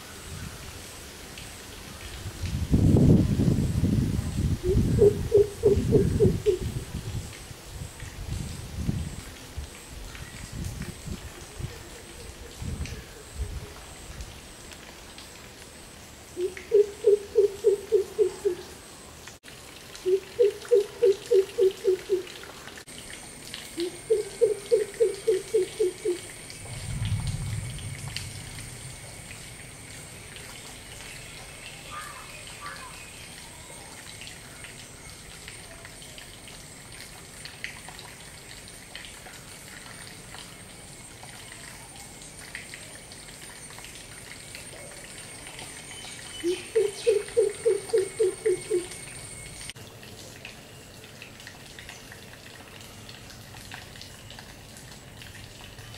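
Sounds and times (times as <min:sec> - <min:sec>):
low rumble: 0:26.7 - 0:29.6.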